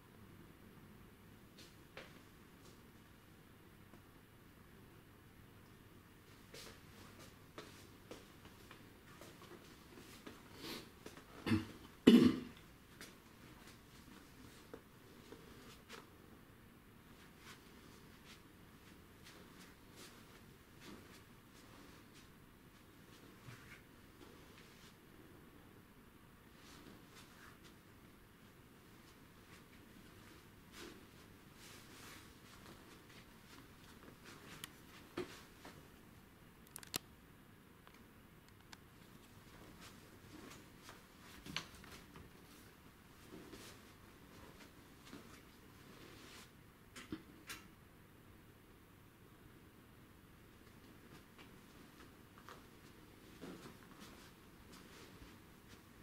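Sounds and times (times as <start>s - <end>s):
light clicks and taps: 36.6s - 37.1s.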